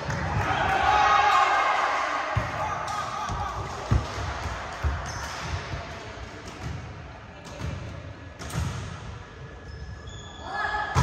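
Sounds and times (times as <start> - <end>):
volleyball thumps: 2.4 - 9.0.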